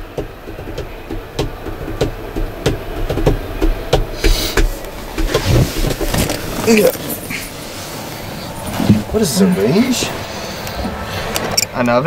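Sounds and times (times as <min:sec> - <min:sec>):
irregular knocks and thumps: 0:00.0 - 0:06.6.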